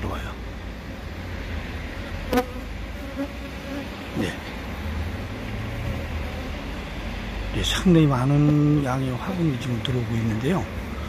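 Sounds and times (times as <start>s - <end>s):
bees buzzing around hive: 0.4s - 11.0s
single bee buzzing close by: 2.2s - 4.2s, 5.4s - 7.1s.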